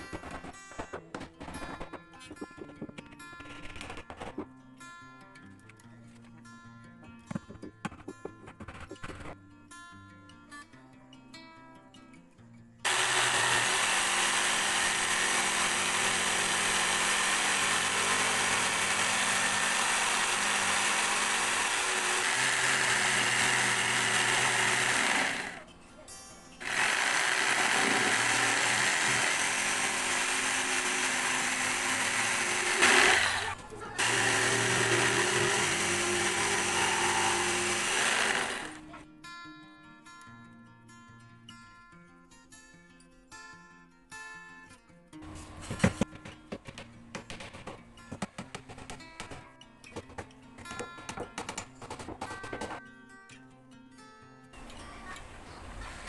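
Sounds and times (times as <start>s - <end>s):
jigsaw cutting wood: 0.0s - 0.9s, 12.9s - 25.6s, 26.6s - 38.9s.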